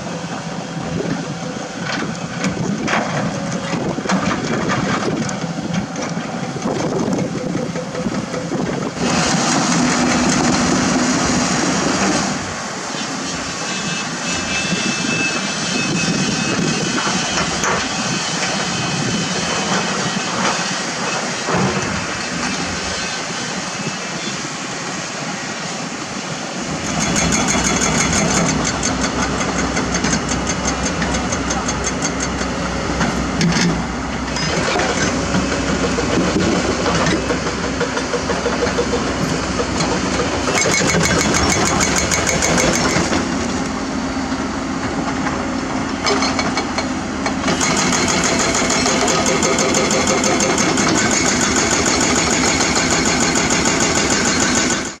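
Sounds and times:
diesel engine running: 0.0 - 13.0, 26.6 - 55.0
hydraulic breaker hammering rock: 26.8 - 43.4, 46.0 - 55.0.

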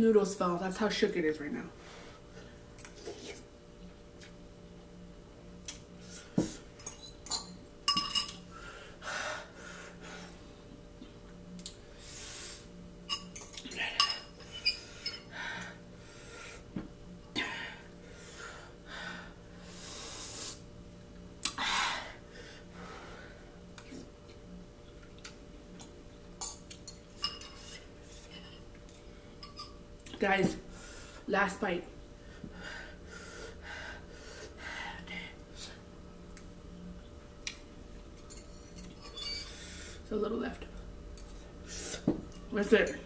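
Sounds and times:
heavy breathing: 8.5 - 10.5, 32.2 - 35.8.

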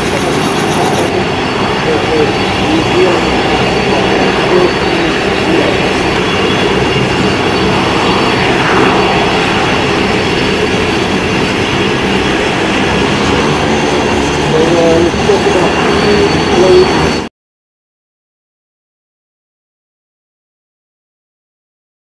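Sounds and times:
loud engine drone with hiss: 0.0 - 17.3.

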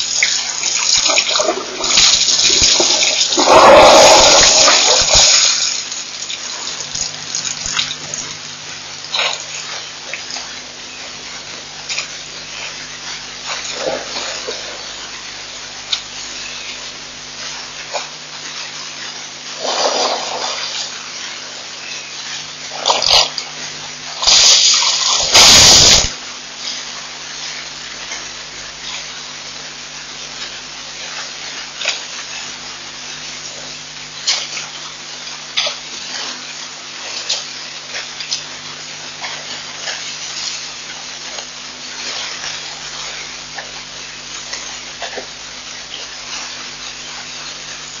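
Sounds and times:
water splashing: 0.0 - 8.4, 19.5 - 21.2
faint hum: 0.0 - 48.0
steady hiss: 0.0 - 48.0
elephant snorting and blowing: 2.7 - 5.6, 19.6 - 20.7.

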